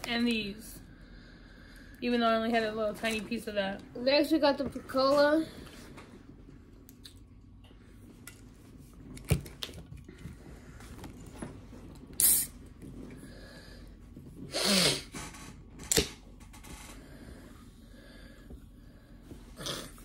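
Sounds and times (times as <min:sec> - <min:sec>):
short hissing bursts: 0:12.2 - 0:12.6.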